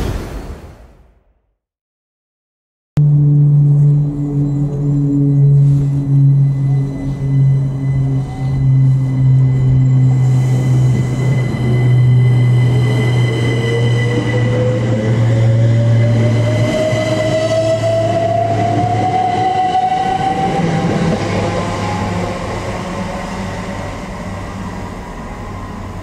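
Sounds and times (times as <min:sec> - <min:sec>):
electric train motors whining: 0:03.0 - 0:26.0.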